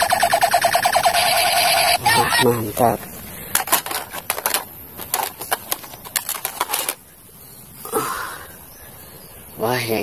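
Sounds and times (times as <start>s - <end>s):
plastic toy guns clattering: 3.5s - 7.0s.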